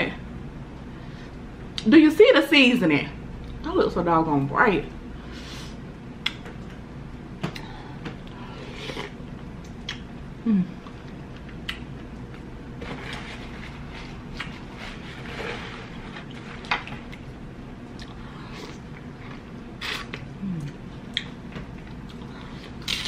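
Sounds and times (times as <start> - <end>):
low falling hum: 0.0 - 23.0
close-miked eating sounds: 6.2 - 23.0.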